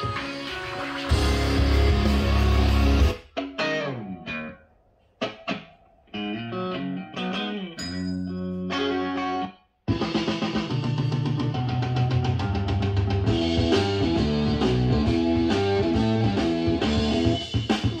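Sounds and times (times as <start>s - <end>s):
guitar music with drums: 0.0s - 4.6s, 5.2s - 18.0s.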